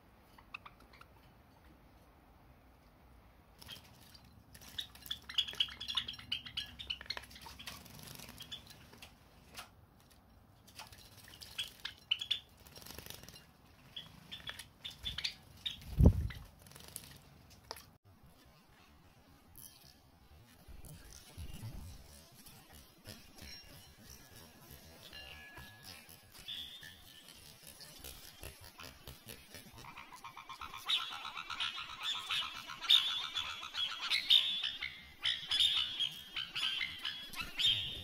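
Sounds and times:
sparrows chirping: 3.6 - 9.0, 11.3 - 17.0, 20.8 - 38.0
birds splashing in water: 3.6 - 9.3, 10.7 - 18.0.

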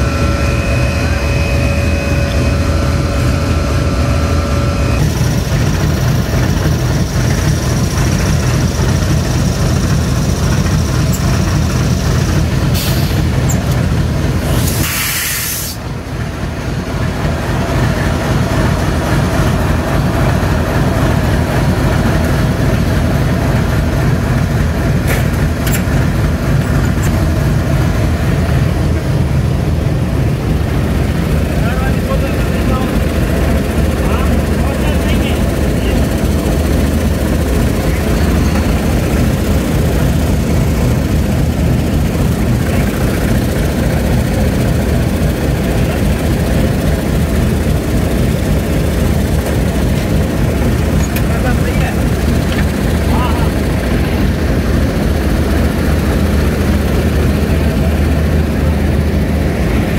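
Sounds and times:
locomotive engine idling: 0.0 - 59.9
air hissing: 12.6 - 13.6, 14.4 - 15.9.

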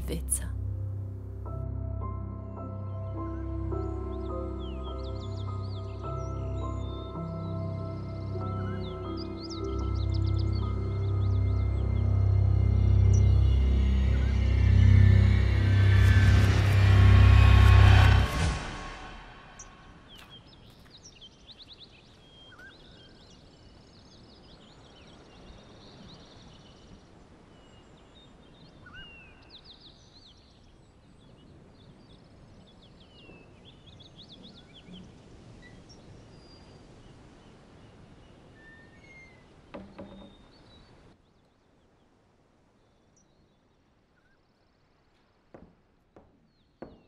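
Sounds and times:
birds chirping: 3.0 - 18.3, 18.9 - 41.1
outdoor background hiss: 19.1 - 47.0
knock: 39.7 - 40.5, 45.5 - 47.0.

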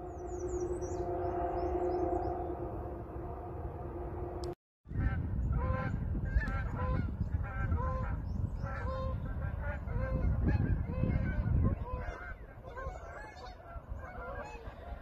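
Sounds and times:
steady low rumble: 0.0 - 11.9
geese honking: 0.0 - 15.0.

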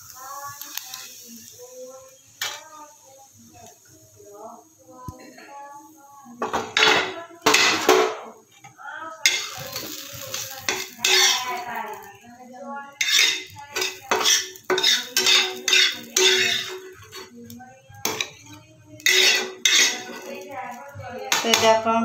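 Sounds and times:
metal spatula scraping a pan: 2.4 - 2.7, 6.4 - 12.1, 12.8 - 21.8.

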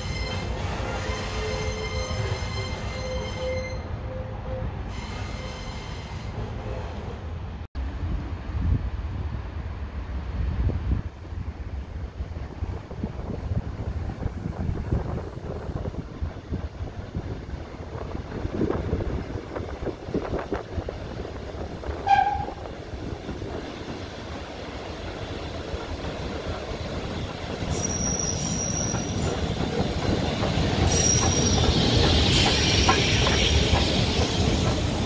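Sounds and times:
steam locomotive whistle: 0.0 - 6.3, 22.0 - 22.6
train rumbling past: 0.0 - 35.0
steam hissing: 27.6 - 35.0.

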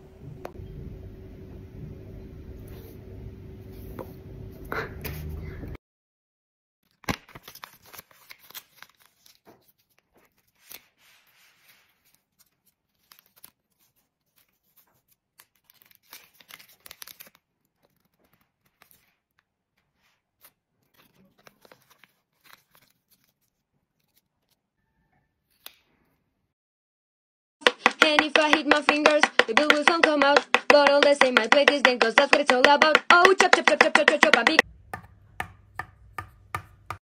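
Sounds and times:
paper rustling and crinkling: 6.9 - 24.6.

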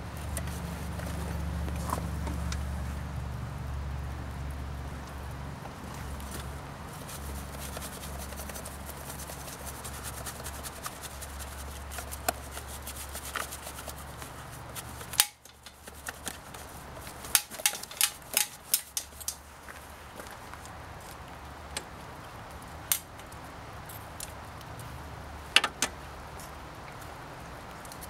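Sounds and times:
brush knocking frame: 5.9 - 19.4
brush scrubbing metal frame: 6.0 - 19.4.

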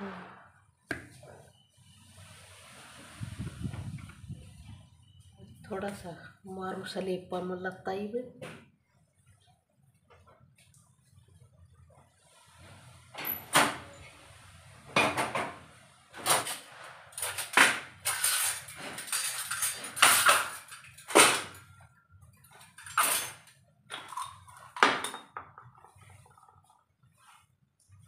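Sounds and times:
steel utensils clinking: 16.4 - 21.6, 22.7 - 25.4.

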